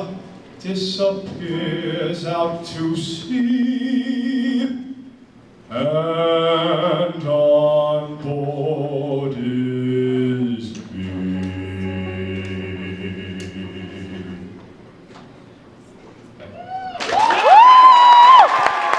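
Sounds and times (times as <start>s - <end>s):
man singing held notes: 0.0s - 14.7s.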